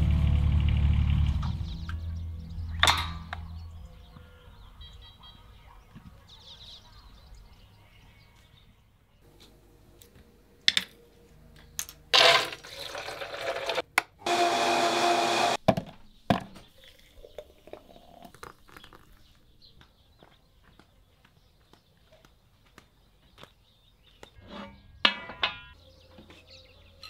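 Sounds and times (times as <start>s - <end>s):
countertop blender running: 12.2s - 15.6s.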